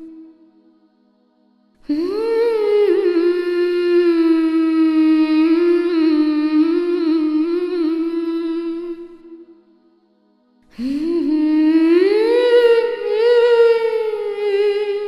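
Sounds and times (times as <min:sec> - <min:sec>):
person humming a long note: 0:01.9 - 0:09.6, 0:10.8 - 0:15.0.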